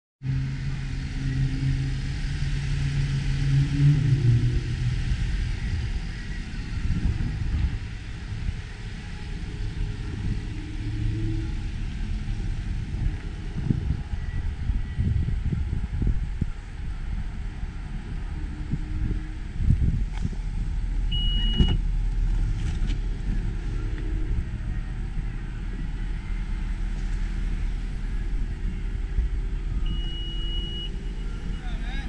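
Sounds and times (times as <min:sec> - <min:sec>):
vehicle engine rumble: 0:00.2 - 0:32.0
wind buffeting microphone: 0:00.2 - 0:32.0.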